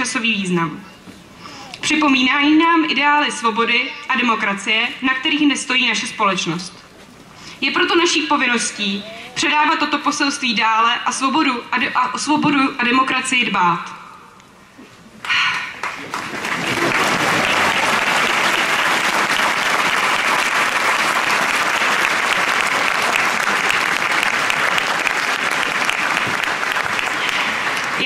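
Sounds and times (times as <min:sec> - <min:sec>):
crowd applauding: 0:15.2 - 0:28.0.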